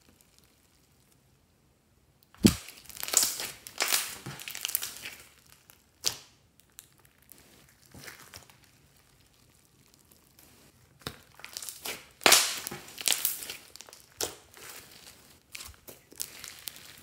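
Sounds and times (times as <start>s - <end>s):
slime squeezed popping: 2.4s - 5.2s.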